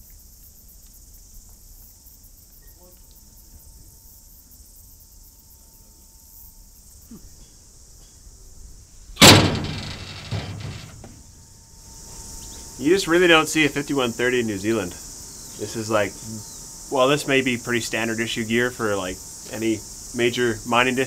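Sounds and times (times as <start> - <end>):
insects chirping: 0.0 - 21.0
loud thump: 9.2 - 11.2.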